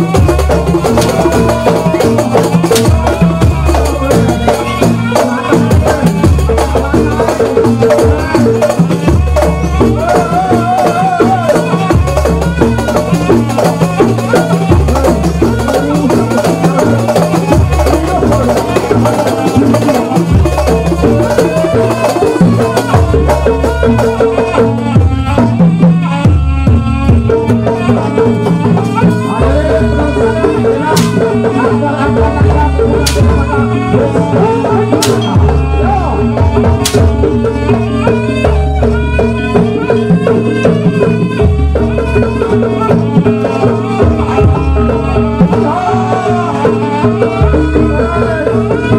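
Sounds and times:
big bass drum: 0.0s - 38.0s
percussion ensemble: 0.0s - 48.9s
pitched melody line: 0.0s - 48.9s.

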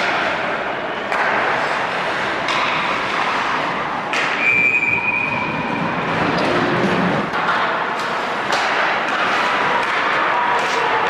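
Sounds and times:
hockey sticks and puck clacking: 0.0s - 6.6s, 7.2s - 11.0s
skates scraping ice: 1.1s - 11.0s
referee whistle: 4.4s - 5.5s.

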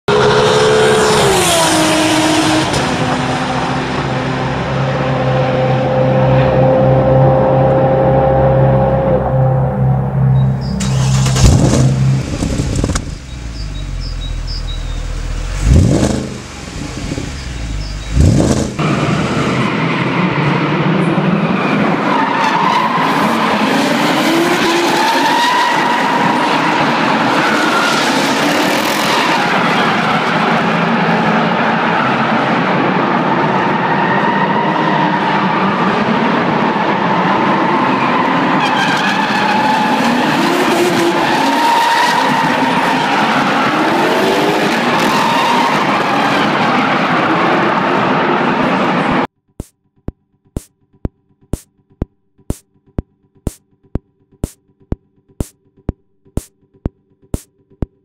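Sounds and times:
car engine revving: 0.1s - 22.0s
tire squeal: 12.4s - 32.6s, 33.3s - 48.9s.

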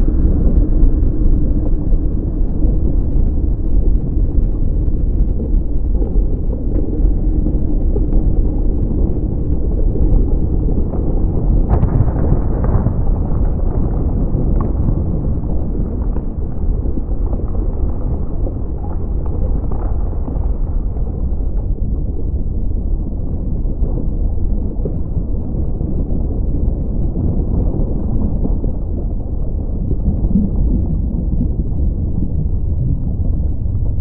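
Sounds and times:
crackles and pops: 0.0s - 34.0s
deep rumble: 0.0s - 34.0s.

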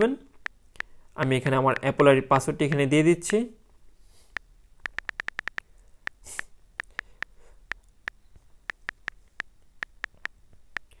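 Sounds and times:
phone keyboard taps: 4.8s - 6.2s, 9.8s - 11.0s.

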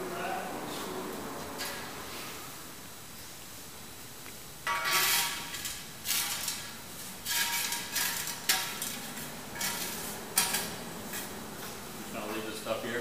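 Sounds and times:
metallic clanking: 4.6s - 11.8s.

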